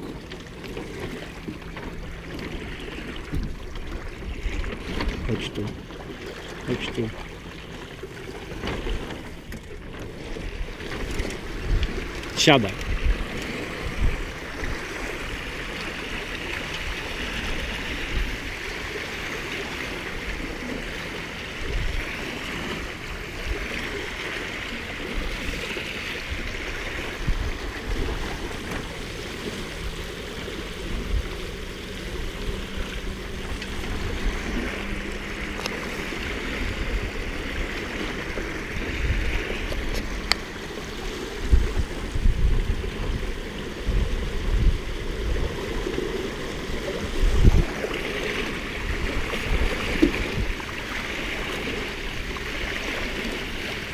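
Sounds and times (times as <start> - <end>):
water rushing past hulls: 0.0 - 53.9
wind buffeting microphone: 0.0 - 53.9.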